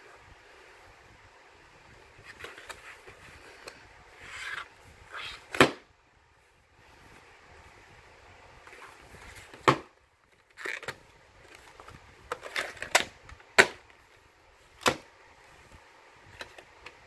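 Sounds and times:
plastic case rubbing and clicking: 0:02.2 - 0:05.8.

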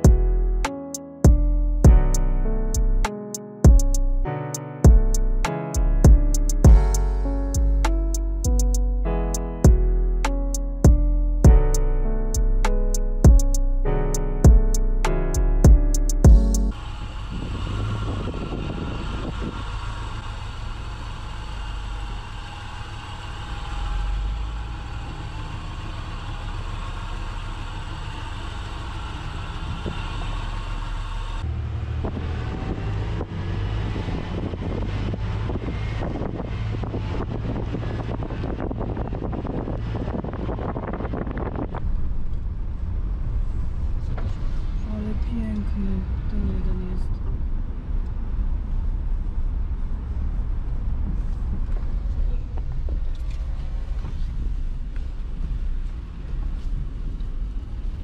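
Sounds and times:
off-road vehicle engine rumble: 0:16.6 - 0:58.0.

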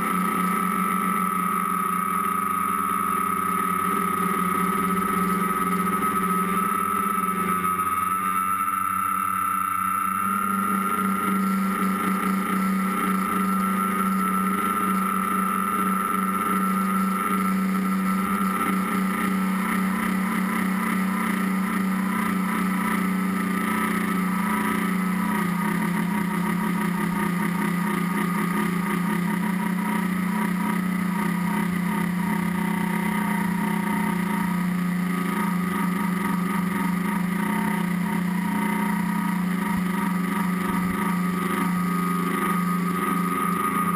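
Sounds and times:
drone propellers buzzing: 0:00.0 - 0:43.9.

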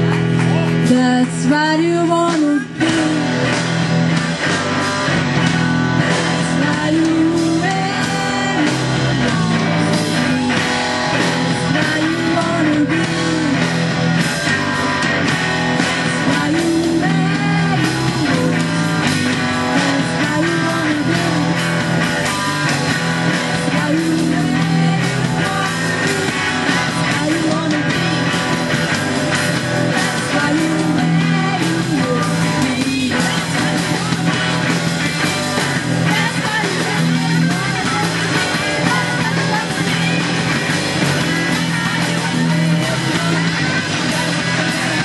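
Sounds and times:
bass guitar: 0:00.0 - 0:45.0
drum kit: 0:00.0 - 0:45.0
electric guitar: 0:00.0 - 0:45.0
woman singing: 0:00.8 - 0:45.0.

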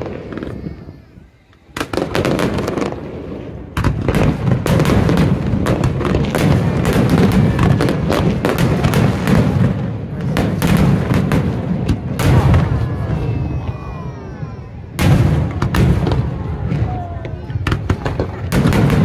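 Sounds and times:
fireworks bursting: 0:00.0 - 0:19.0.

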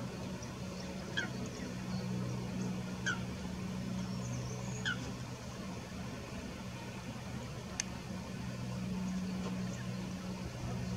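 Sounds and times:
steady low hum: 0:00.0 - 0:10.9
bird calling: 0:00.8 - 0:02.1, 0:02.9 - 0:03.4, 0:04.0 - 0:05.1.

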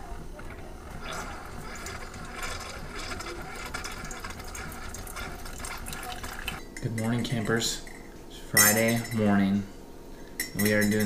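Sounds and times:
coffee pouring into mug: 0:00.0 - 0:07.6
low machine hum: 0:00.0 - 0:11.0.

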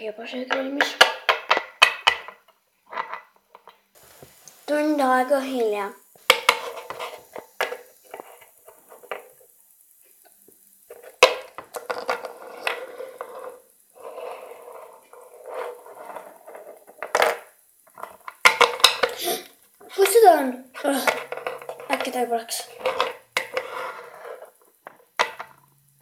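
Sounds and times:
plastic toys clicking and knocking: 0:00.5 - 0:03.8, 0:06.2 - 0:09.6, 0:10.2 - 0:25.9
rustling: 0:04.0 - 0:20.0.

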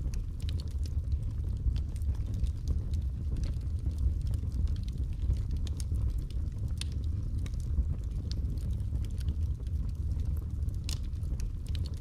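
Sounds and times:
fire crackles and pops: 0:00.0 - 0:12.0
low rumble of flames: 0:00.0 - 0:12.0.

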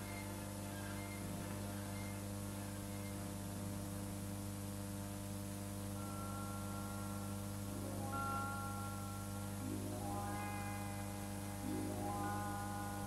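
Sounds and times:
electrical mains hum with hiss: 0:00.0 - 0:13.0
faint high held tone: 0:06.0 - 0:13.0.

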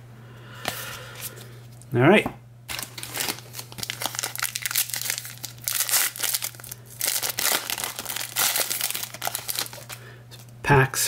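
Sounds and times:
wrapper tearing and crinkling: 0:02.7 - 0:10.0.

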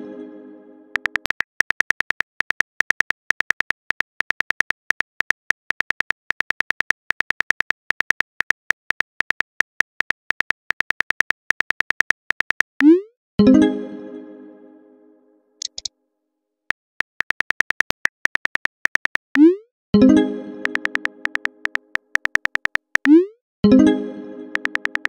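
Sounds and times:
keyboard typing clicks: 0:00.9 - 0:13.0, 0:15.6 - 0:15.9, 0:16.7 - 0:19.6, 0:20.6 - 0:23.3, 0:24.5 - 0:25.0.

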